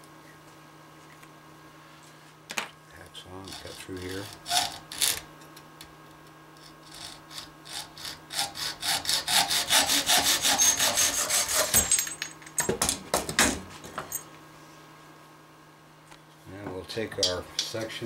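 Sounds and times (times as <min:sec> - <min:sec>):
hacksaw cutting metal rod: 0:03.4 - 0:05.2, 0:06.8 - 0:12.0.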